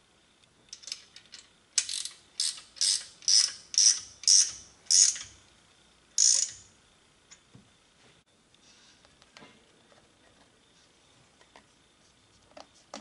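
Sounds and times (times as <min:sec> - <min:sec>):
ratcheting wrench clicking: 0:00.7 - 0:05.4, 0:06.2 - 0:06.6.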